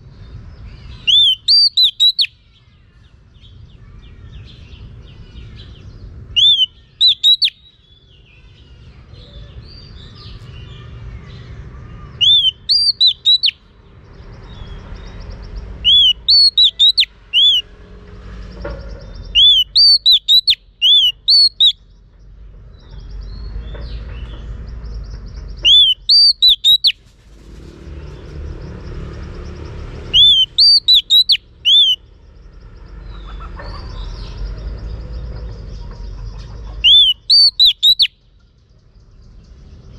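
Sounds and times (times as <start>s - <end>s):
bird singing whistled notes: 0.8s - 2.6s, 4.3s - 8.6s, 12.2s - 13.7s, 14.4s - 17.7s, 19.1s - 22.0s, 24.2s - 27.0s, 29.7s - 32.6s, 36.8s - 38.3s.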